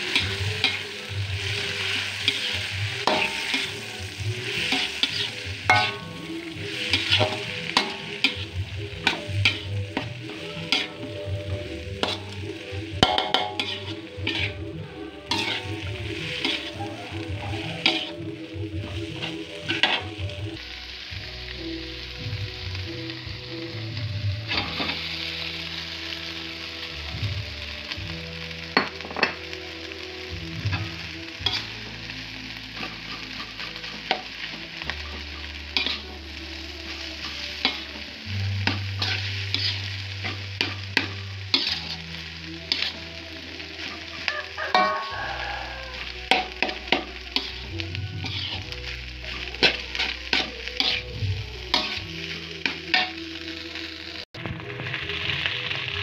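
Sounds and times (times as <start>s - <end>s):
spatula scraping a wok: 0.0s - 20.4s, 24.4s - 25.6s, 30.5s - 53.6s
food sizzling in a wok: 0.0s - 56.0s.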